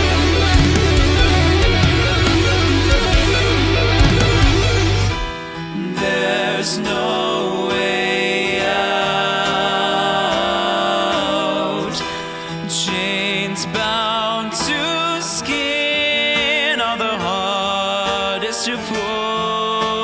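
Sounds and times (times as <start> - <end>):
heavy low guitar and bass: 0.0 - 5.5
band music with guitars: 0.0 - 20.0
sung vocals: 0.0 - 20.0.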